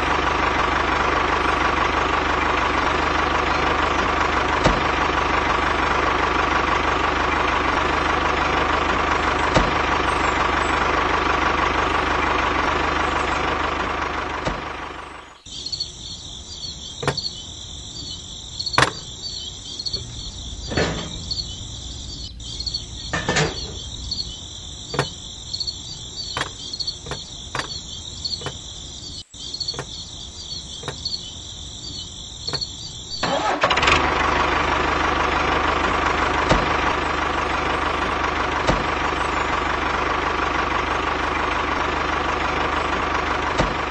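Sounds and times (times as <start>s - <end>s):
tractor engine running: 0.0s - 43.9s
small parts clicking and knocking: 17.0s - 17.4s, 18.7s - 19.2s, 24.9s - 25.2s, 26.2s - 28.6s.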